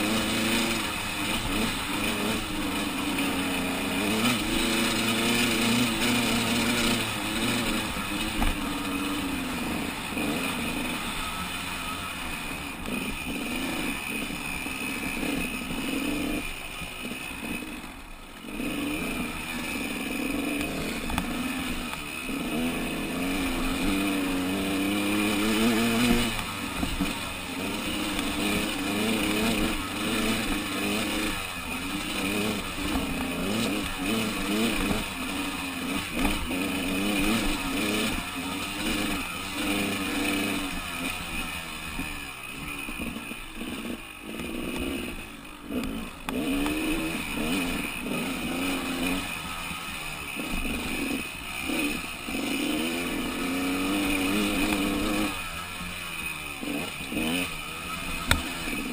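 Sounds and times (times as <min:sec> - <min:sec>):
motorcycle engine revving: 0:00.0 - 0:58.9.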